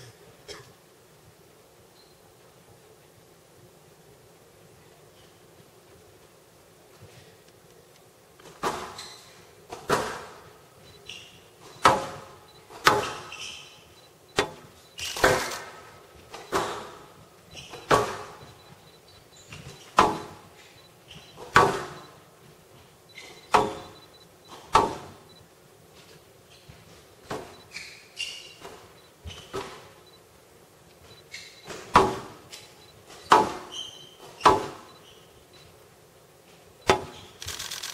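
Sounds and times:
squash ball hitting rackets and walls: 8.6s - 9.1s, 9.7s - 10.6s, 11.7s - 13.7s, 14.4s - 18.5s, 19.6s - 20.5s, 21.4s - 22.0s, 23.2s - 25.2s, 31.6s - 32.5s, 33.1s - 34.9s, 36.8s - 37.4s
shoe squeaks: 8.9s - 9.4s, 10.9s - 11.8s, 12.5s - 14.1s, 16.3s - 20.0s, 20.7s - 21.5s, 23.1s - 24.6s, 27.5s - 30.2s, 31.1s - 31.8s, 32.7s - 35.7s, 37.1s - 37.9s.

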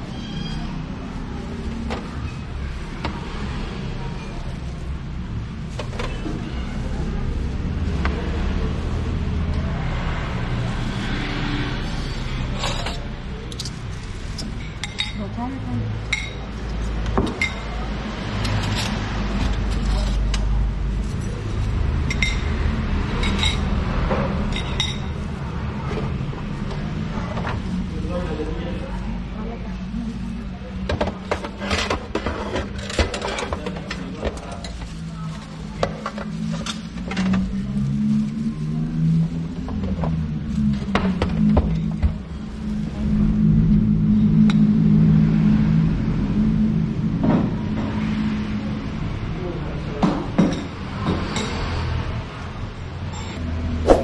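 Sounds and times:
utensils clinking on metal trays: 22.0s - 25.2s, 31.0s - 37.8s
low steady hum: 32.9s - 49.8s
steady low rumble: 33.8s - 50.0s.

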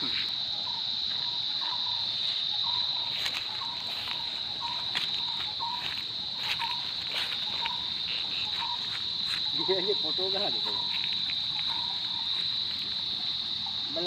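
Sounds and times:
insects buzzing: 0.0s - 14.0s.

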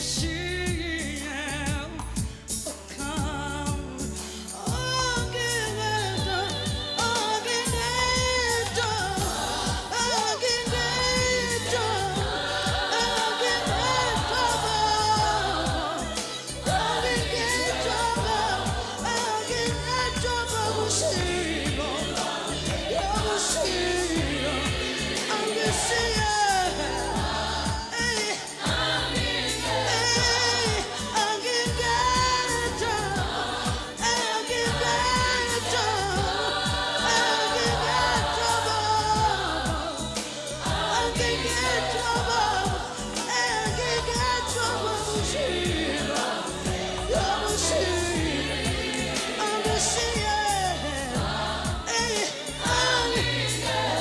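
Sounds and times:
backing singers: 0.0s - 54.0s
woman singing lead: 0.0s - 54.0s
steady beat: 4.7s - 54.0s.

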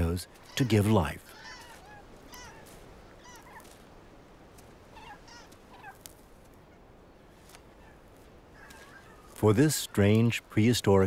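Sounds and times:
megapodes calling: 0.0s - 3.6s
steady background hiss: 0.0s - 11.0s.

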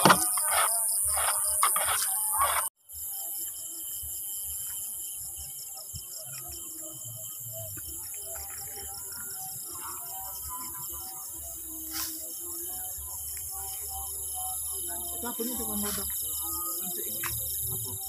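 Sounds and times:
crickets chirring: 0.0s - 18.0s
high-pitched insect hiss: 0.0s - 18.0s.

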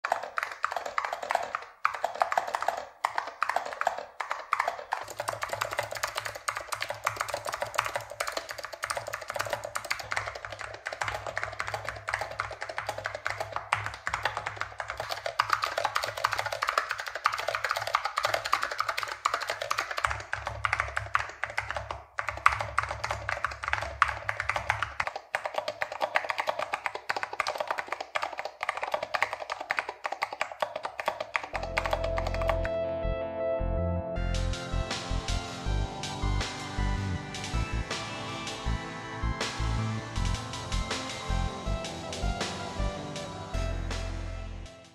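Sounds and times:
fast typing on mechanical keyboard: 0.0s - 32.7s.

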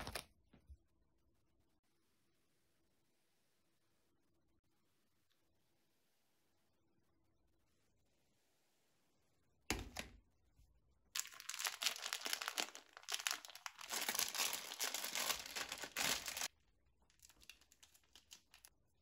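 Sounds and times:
plastic pouch crinkling: 11.2s - 18.8s.

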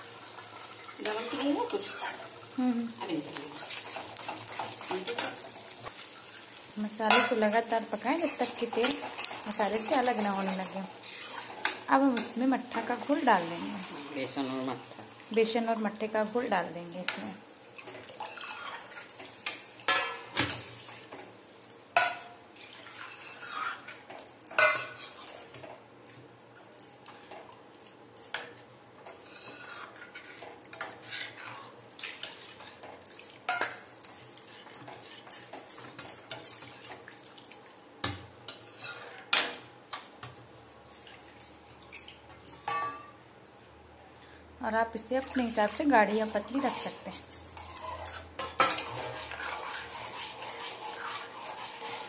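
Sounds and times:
metal ladle clinking and scraping pot: 24.6s - 25.5s, 46.3s - 52.0s.

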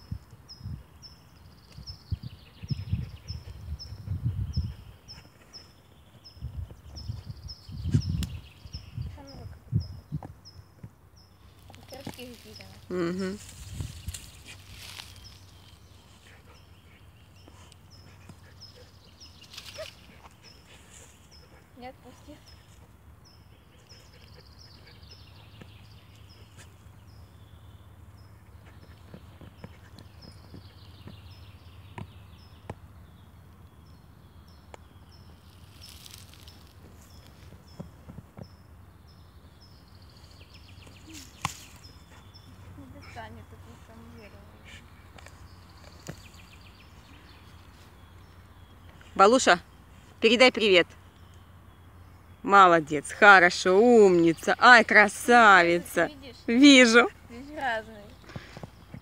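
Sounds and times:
small bird chirping: 0.0s - 59.0s
dog paws scraping sandy soil: 11.5s - 22.9s, 35.2s - 38.6s.

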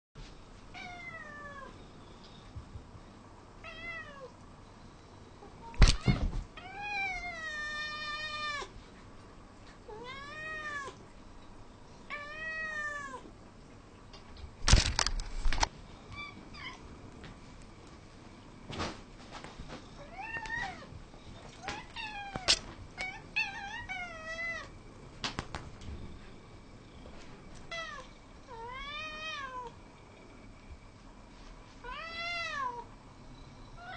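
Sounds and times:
cats meowing: 9.9s - 11.0s.

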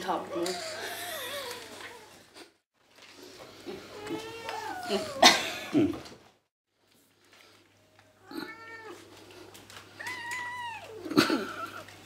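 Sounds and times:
cats meowing: 3.7s - 5.2s, 8.2s - 11.9s.

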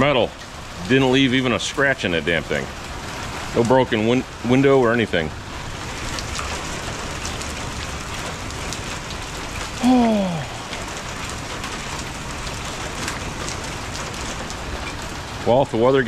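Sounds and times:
hailstones ticking: 0.0s - 16.0s
steady rain: 0.0s - 16.0s
person humming: 9.8s - 10.7s.

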